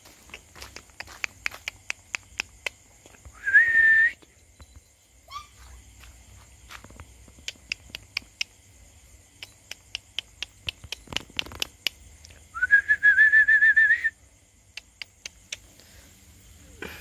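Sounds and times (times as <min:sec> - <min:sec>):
sharp clicks: 0:09.4 - 0:12.4, 0:14.7 - 0:15.7.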